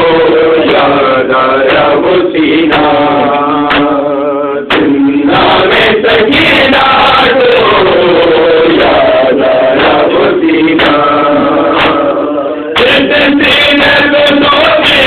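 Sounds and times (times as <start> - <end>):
lead male voice chanting: 0.0 - 15.0
men chanting together: 0.0 - 15.0
hands striking chests: 3.6 - 4.0, 9.8 - 12.2.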